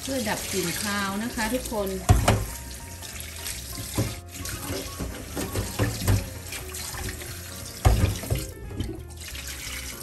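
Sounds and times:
tap running into metal bowl: 0:02.0 - 0:02.7, 0:03.7 - 0:09.1.

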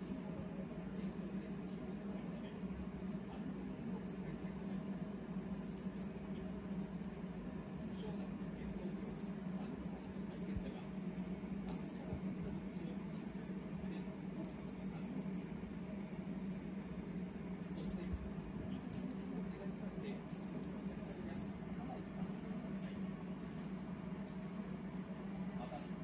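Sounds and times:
steady low hum: 0:00.0 - 0:26.0
cat toy jingling and rattling: 0:05.4 - 0:07.2, 0:09.0 - 0:09.6, 0:11.6 - 0:19.3, 0:20.2 - 0:22.0, 0:22.7 - 0:24.4, 0:25.7 - 0:26.0.

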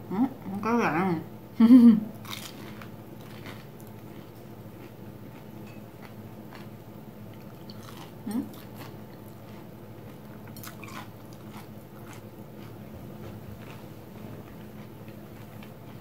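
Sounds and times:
steady low hum: 0:00.0 - 0:16.0
crunching and chewing: 0:02.2 - 0:16.0.

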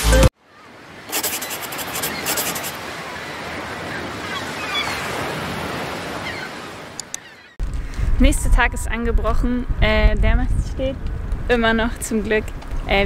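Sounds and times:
ocean waves breaking: 0:00.4 - 0:07.6.

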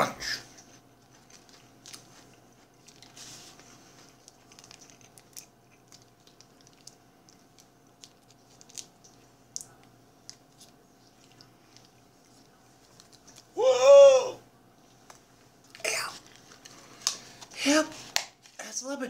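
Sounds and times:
small clicks and rustles: 0:01.0 - 0:13.5
plastic packet crinkling and tearing: 0:01.0 - 0:13.6.

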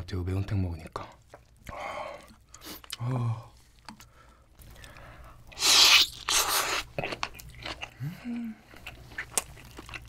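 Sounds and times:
wet mouth noise: 0:05.5 - 0:08.9.

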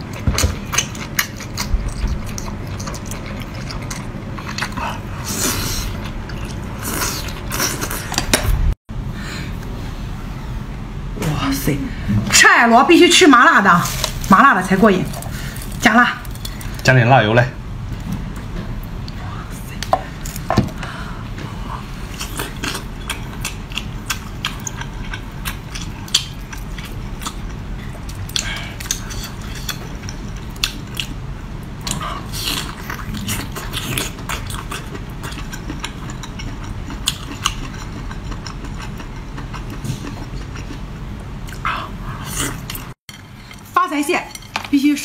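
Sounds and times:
chewing with crunches: 0:00.0 - 0:08.4, 0:22.0 - 0:31.2, 0:31.8 - 0:43.6
low hum: 0:00.0 - 0:16.9.

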